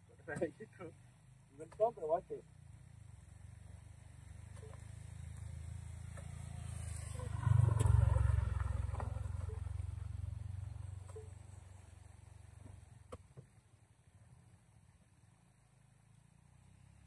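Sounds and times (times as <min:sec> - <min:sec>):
motorcycle passing by: 0:03.0 - 0:12.6, 0:16.1 - 0:17.0.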